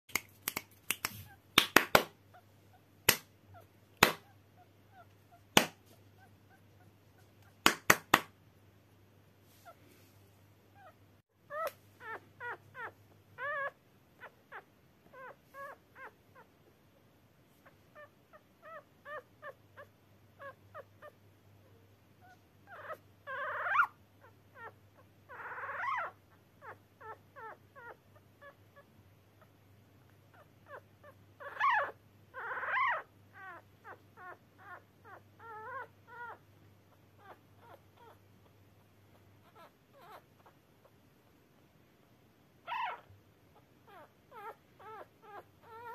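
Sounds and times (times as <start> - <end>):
puppy whining squeaks: 3.5 - 7.5, 10.7 - 16.5, 17.6 - 29.5, 30.3 - 38.2, 39.1 - 40.6, 42.6 - 45.9.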